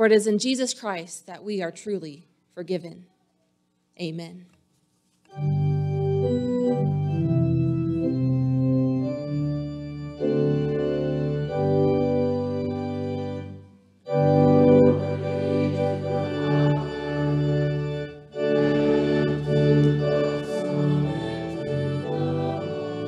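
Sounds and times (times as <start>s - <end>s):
organ playing sustained chords: 5.3s - 23.0s.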